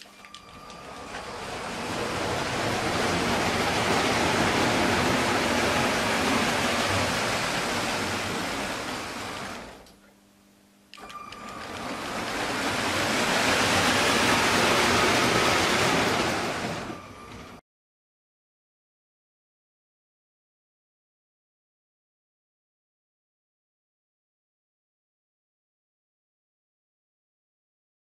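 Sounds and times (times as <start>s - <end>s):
toy train wheels and motor rattling: 11.0s - 16.9s.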